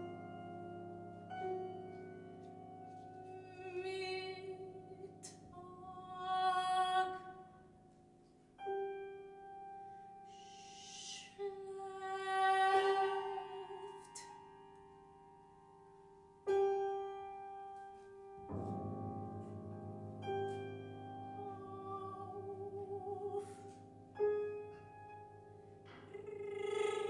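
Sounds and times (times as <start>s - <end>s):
soprano singing with vibrato: 3.3s - 7.6s, 10.4s - 14.6s, 21.2s - 23.8s, 26.0s - 27.0s
piano strings ringing: 8.6s - 27.0s.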